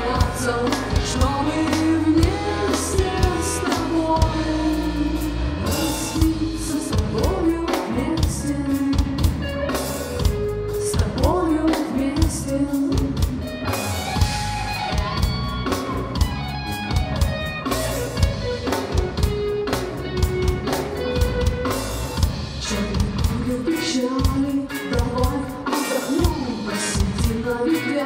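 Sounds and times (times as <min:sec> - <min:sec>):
bass guitar: 0:00.0 - 0:28.0
drum kit: 0:00.0 - 0:28.0
electric guitar lines: 0:13.0 - 0:22.5.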